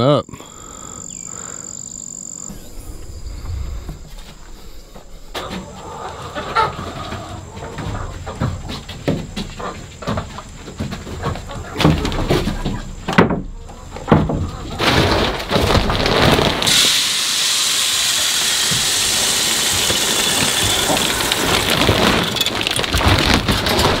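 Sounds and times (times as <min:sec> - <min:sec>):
chickens clucking: 0:00.6 - 0:16.2
feed pellets pouring: 0:15.9 - 0:24.0.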